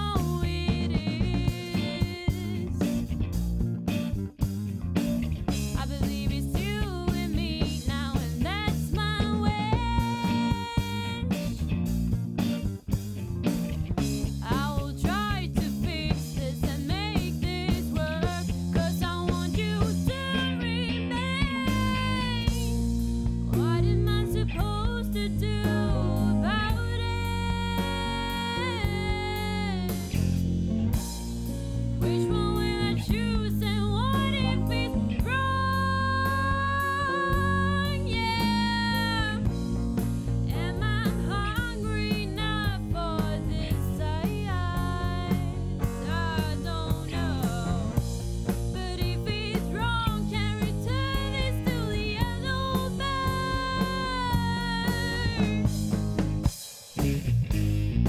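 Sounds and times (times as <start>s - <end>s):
person singing: 0.0s - 2.7s, 32.0s - 39.5s, 40.5s - 48.0s, 49.0s - 55.6s
bass guitar: 0.0s - 58.0s
drums: 0.0s - 58.0s
rock band playing: 0.0s - 58.0s
plucked guitar: 16.9s - 58.0s.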